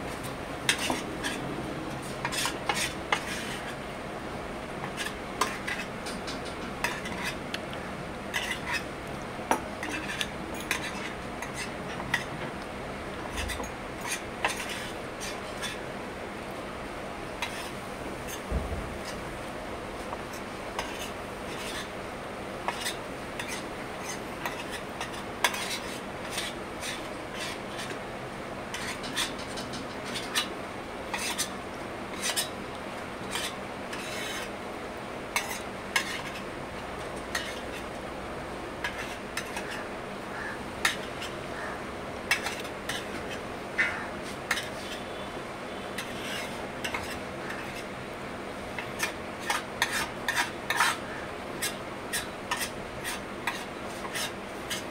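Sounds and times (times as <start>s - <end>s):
spoon scraping metal plate: 8.3s - 8.8s, 9.8s - 12.3s, 22.7s - 28.0s, 31.1s - 31.5s, 33.3s - 34.5s, 46.0s - 47.9s, 48.8s - 51.0s.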